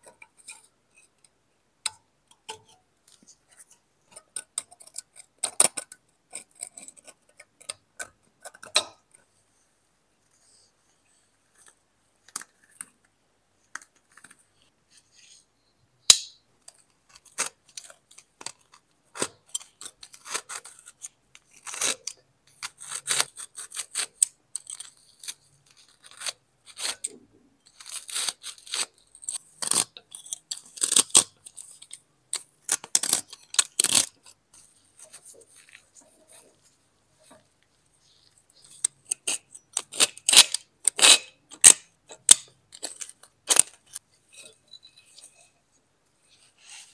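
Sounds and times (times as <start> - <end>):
scraping on a rusty knife: 0.0 - 1.4, 2.4 - 9.3, 19.2 - 45.6.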